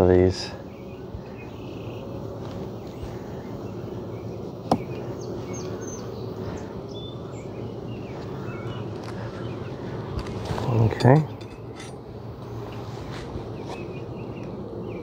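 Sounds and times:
bees humming: 0:00.0 - 0:15.0
faint bird chirps: 0:00.6 - 0:02.2, 0:02.8 - 0:09.8
hive tool clicking on wood: 0:04.6 - 0:05.0.

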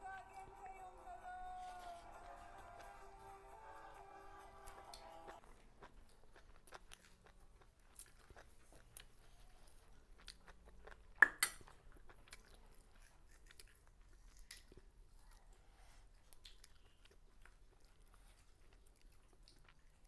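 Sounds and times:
chewing and mouth clicks: 0:04.0 - 0:20.0.

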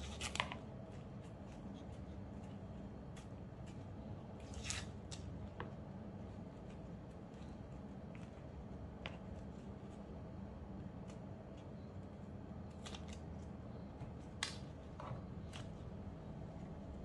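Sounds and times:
onion skin crackling: 0:00.0 - 0:05.4, 0:12.7 - 0:13.5
steady low hum: 0:00.0 - 0:17.0.

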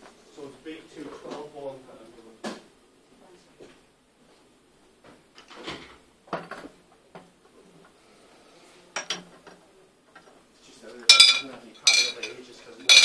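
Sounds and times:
objects knocking and clattering: 0:05.4 - 0:07.3, 0:09.0 - 0:10.4, 0:11.0 - 0:13.0.

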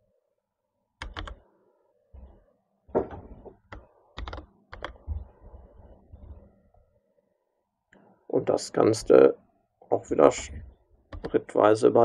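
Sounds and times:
computer keyboard keystrokes: 0:01.0 - 0:01.4, 0:03.7 - 0:05.0, 0:11.1 - 0:11.4.

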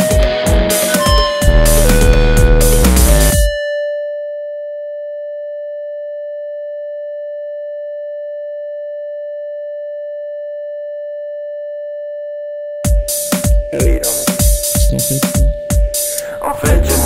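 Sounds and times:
steady electronic tone: 0:00.7 - 0:03.9.

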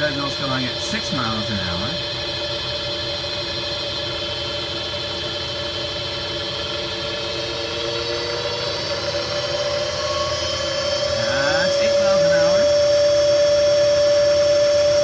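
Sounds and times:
wood lathe motor whining: 0:00.0 - 0:15.0.

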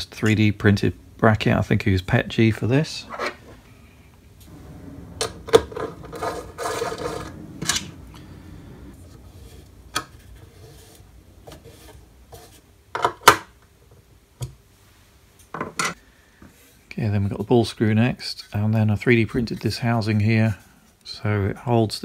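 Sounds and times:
rubbing: 0:05.7 - 0:07.9.

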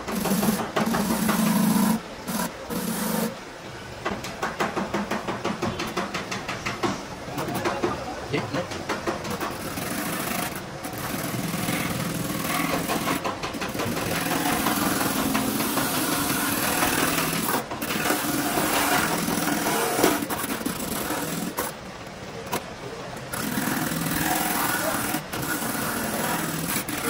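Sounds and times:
rotary buffer grinding rubber: 0:00.0 - 0:03.4, 0:08.4 - 0:22.6, 0:23.2 - 0:27.0.

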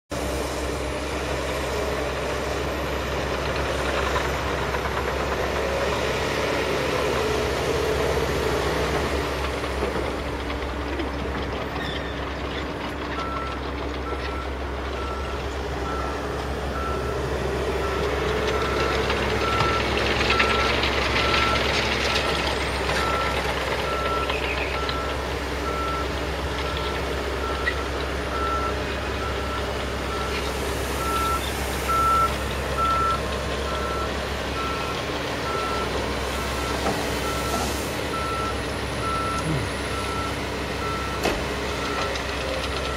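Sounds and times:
heavy diesel engines revving: 0:00.1 - 0:42.9
reversing alarm beeping: 0:31.0 - 0:42.2.

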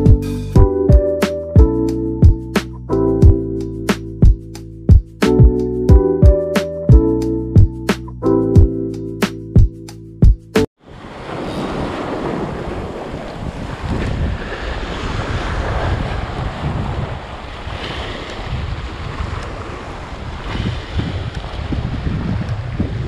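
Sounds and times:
sea waves breaking on rocks: 0:10.8 - 0:23.0
wind buffeting microphone: 0:10.9 - 0:23.0.

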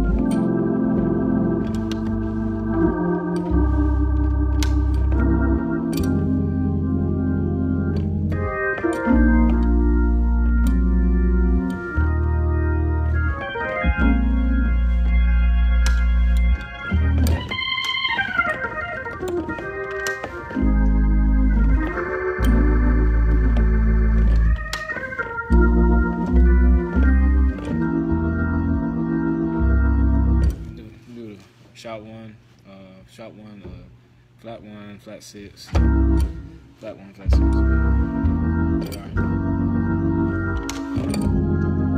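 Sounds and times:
organ chords: 0:00.0 - 0:31.4, 0:33.5 - 0:41.9.

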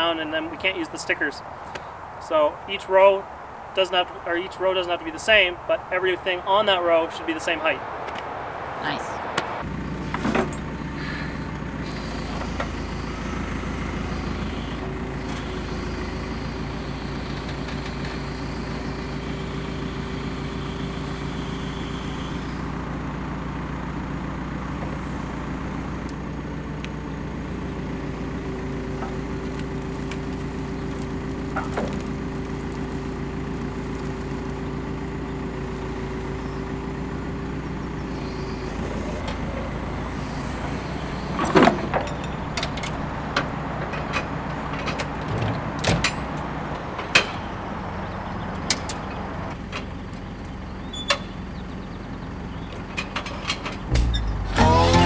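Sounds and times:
diesel engine running: 0:00.0 - 0:55.0
steady whine: 0:02.2 - 0:14.9
knocks and clanks: 0:41.2 - 0:47.5, 0:52.8 - 0:54.7.

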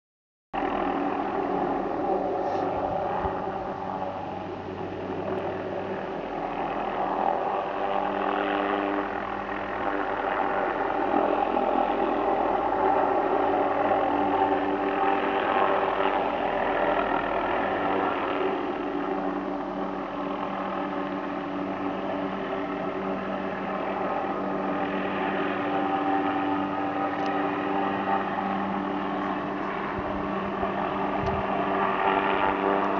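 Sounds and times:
helicopter flying low: 0:00.6 - 0:32.9.

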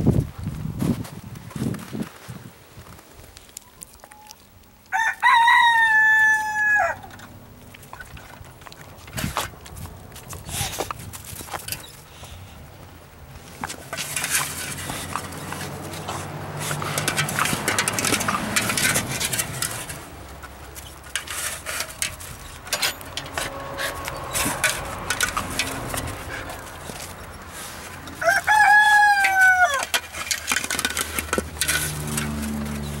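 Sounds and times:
footsteps crunching on snow: 0:00.0 - 0:04.1, 0:08.6 - 0:16.8
rooster crowing: 0:04.9 - 0:07.2, 0:28.2 - 0:30.0.

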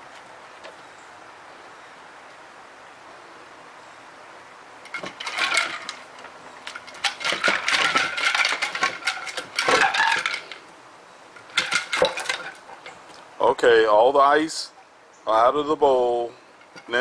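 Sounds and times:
ice cubes clattering in dog bowl: 0:04.9 - 0:06.0, 0:06.7 - 0:10.5, 0:11.5 - 0:12.6.

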